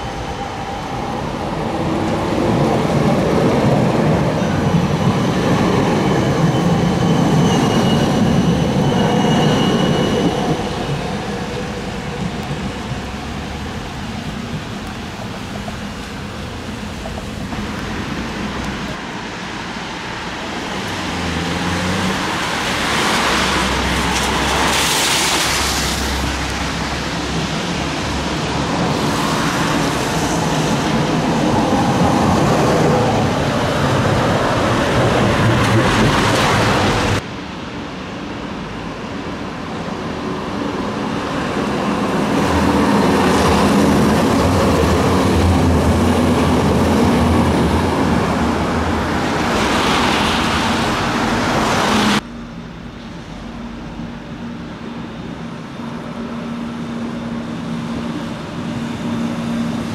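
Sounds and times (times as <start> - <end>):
distant tram hum: 0.0 - 59.9
tram rumbling past: 0.0 - 59.9
traffic hiss on wet street: 11.8 - 35.1, 35.8 - 59.9.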